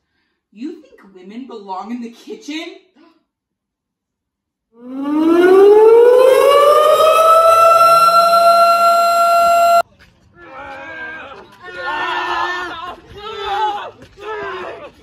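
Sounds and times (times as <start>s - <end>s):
air-raid siren wailing: 4.8s - 9.8s.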